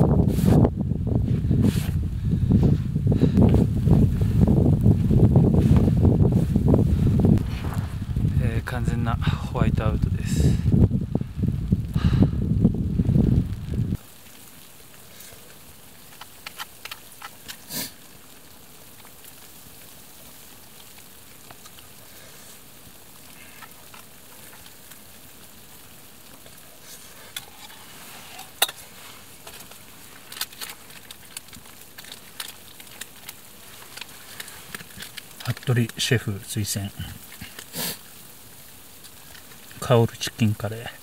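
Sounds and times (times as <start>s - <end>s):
wind buffeting microphone: 0.0s - 14.0s
faint steady hiss: 0.0s - 41.0s.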